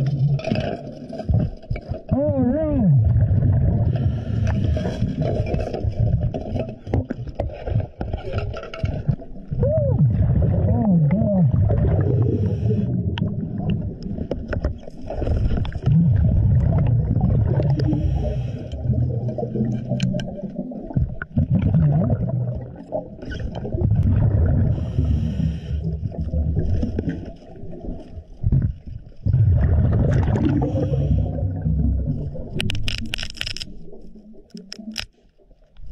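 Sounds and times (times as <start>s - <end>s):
bubbling exhaled air underwater: 0.0s - 8.0s, 9.0s - 32.9s
hissing regulator inhalations: 12.2s - 13.0s, 17.7s - 18.9s.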